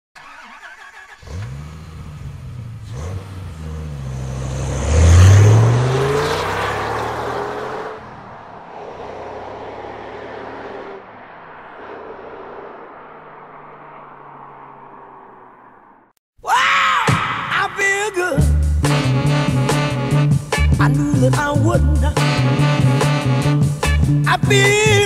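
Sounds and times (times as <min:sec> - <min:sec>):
engine revving: 0:00.2 - 0:16.1, 0:18.5 - 0:25.0.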